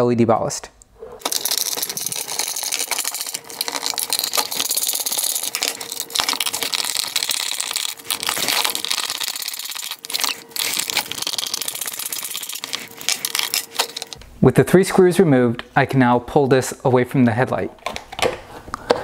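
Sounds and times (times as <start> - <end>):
screwdriver clicking and scraping metal: 1.2 - 14.2.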